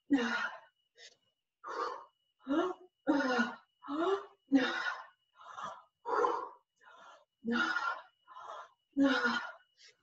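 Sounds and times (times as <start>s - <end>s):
woman breathing hard: 0.2s - 10.0s.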